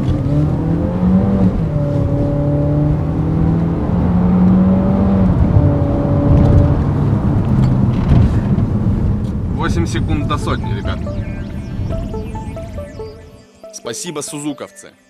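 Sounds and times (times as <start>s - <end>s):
car engine accelerating hard: 0.0s - 9.6s.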